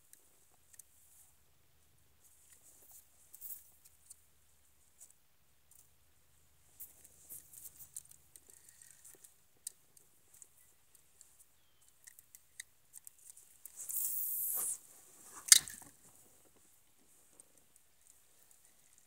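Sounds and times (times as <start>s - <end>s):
handling clicks and rustles: 6.7s - 19.0s
short hiss: 13.8s - 15.8s.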